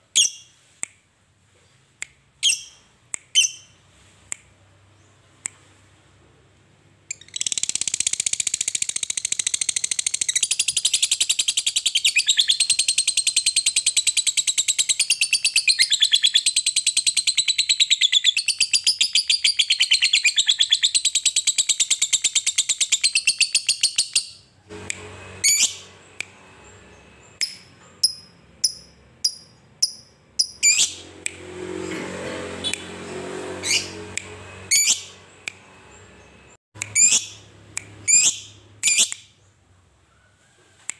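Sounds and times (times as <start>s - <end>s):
bird sharp chirps: 7.1s - 24.5s, 25.4s - 31.1s, 33.6s - 39.5s
bird rapid chattering trill: 36.8s - 39.2s.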